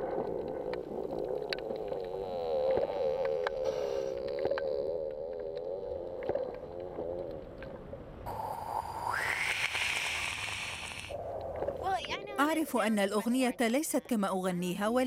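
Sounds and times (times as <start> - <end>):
faint clicks: 0.0 - 7.9.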